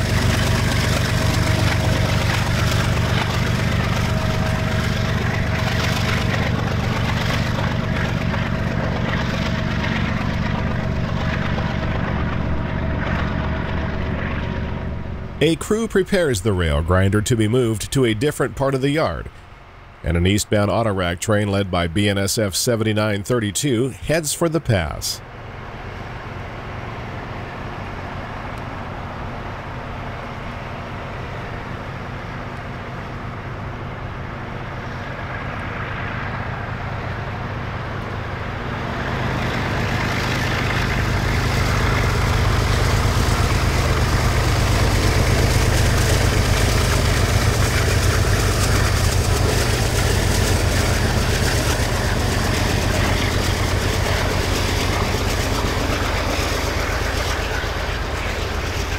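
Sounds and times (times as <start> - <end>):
diesel locomotives rumbling: 0.0 - 58.9
freight cars rolling: 34.8 - 58.9.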